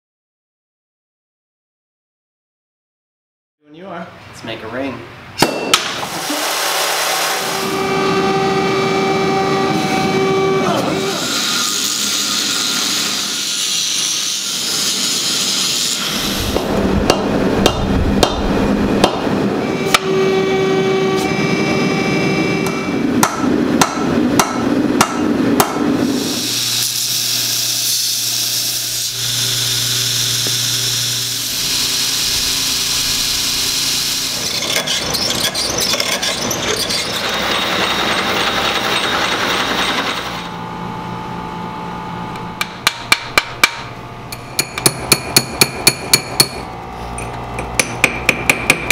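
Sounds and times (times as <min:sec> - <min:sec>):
shop machinery humming: 0:05.2 - 0:48.9
hammer blows on anvil: 0:05.4 - 0:06.1, 0:16.5 - 0:20.2, 0:22.6 - 0:25.9, 0:42.6 - 0:46.7
angle grinder cutting steel: 0:06.2 - 0:17.3, 0:26.0 - 0:40.6.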